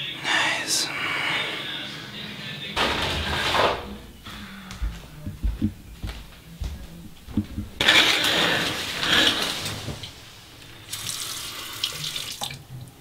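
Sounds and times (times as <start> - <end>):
running water: 7.6 - 13.0.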